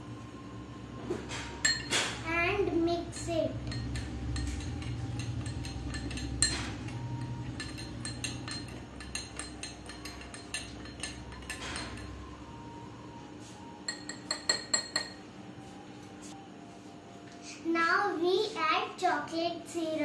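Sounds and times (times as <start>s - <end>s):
spoon clinking against glass: 1.6s - 2.1s, 3.2s - 12.3s, 13.8s - 15.2s.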